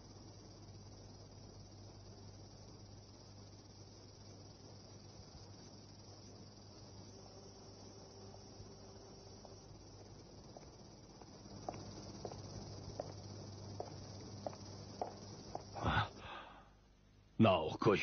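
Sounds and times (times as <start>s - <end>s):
crickets chirring: 0.0s - 18.0s
footsteps on paved path: 9.2s - 16.2s.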